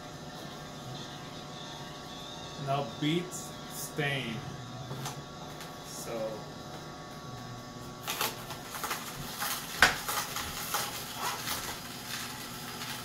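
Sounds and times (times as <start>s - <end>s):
juicer motor hum: 0.0s - 13.0s
juicer crunching and cracking: 7.0s - 13.0s.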